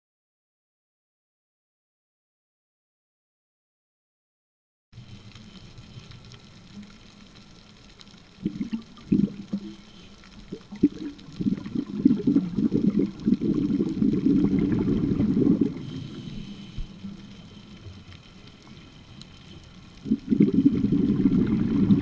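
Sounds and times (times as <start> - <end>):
scuba exhaust bubbles: 8.3 - 22.0.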